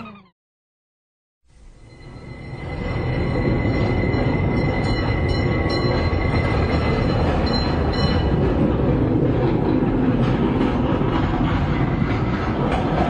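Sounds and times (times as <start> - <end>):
high wheel squeal: 1.8 - 8.5
trolley rolling on rails: 1.8 - 13.0.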